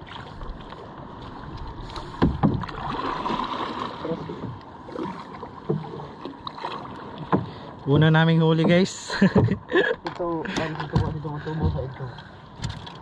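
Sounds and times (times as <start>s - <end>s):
water splashing against boat: 0.0s - 13.0s
sharp knocks on boat: 2.0s - 3.5s, 5.6s - 12.0s, 12.6s - 13.0s.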